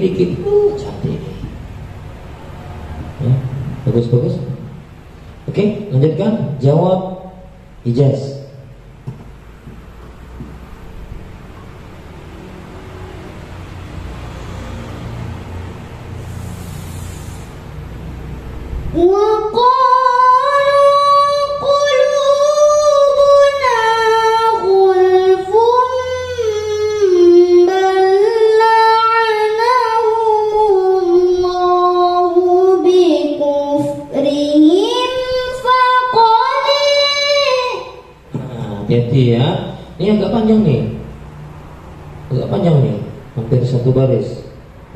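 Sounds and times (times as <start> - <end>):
girl reciting through microphone: 0.0 - 2.1, 18.8 - 41.0.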